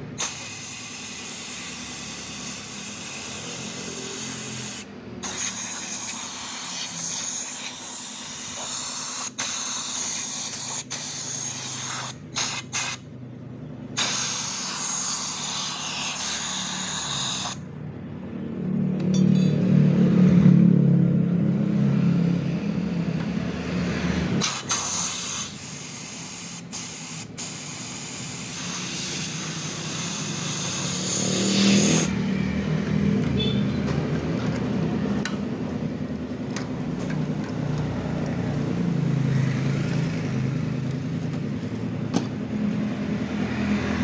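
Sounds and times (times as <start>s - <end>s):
loud hiss: 0.2s - 13.0s, 14.0s - 17.6s, 24.4s - 32.1s.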